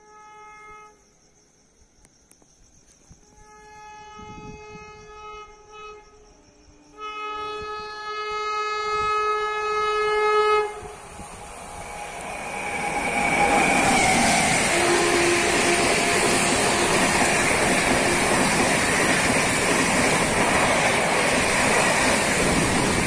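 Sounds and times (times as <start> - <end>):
locomotive horn blasts: 0.0 - 1.0, 3.2 - 6.3, 6.9 - 11.0, 14.6 - 17.2
train wheels on rails: 10.6 - 23.0.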